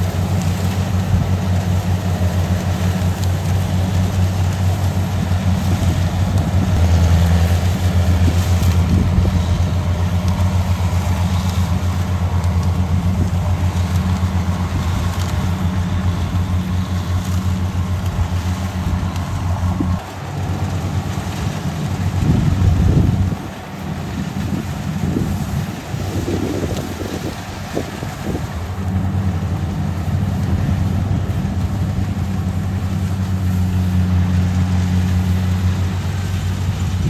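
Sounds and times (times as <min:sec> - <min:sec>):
diesel engine running under load: 0:00.0 - 0:37.0
wind buffeting microphone: 0:03.8 - 0:33.9.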